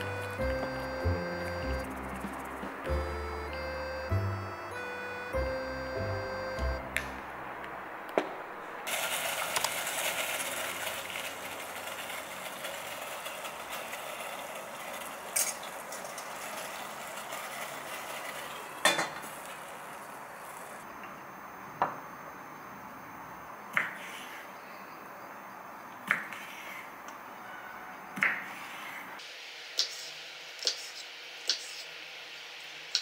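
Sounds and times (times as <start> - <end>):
steamer pot hissing: 0.0 - 5.8, 8.9 - 20.9.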